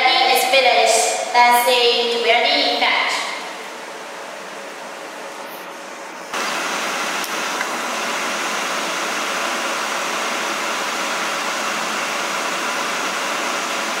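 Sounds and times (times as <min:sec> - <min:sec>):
steady hiss: 0:05.2 - 0:12.4.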